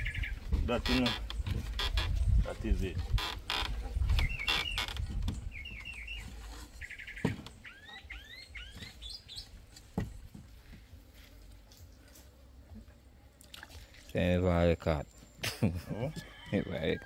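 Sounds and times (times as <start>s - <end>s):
bird chirping and whistling: 4.2s - 9.5s
dull knocks: 7.2s - 7.6s, 9.9s - 10.8s.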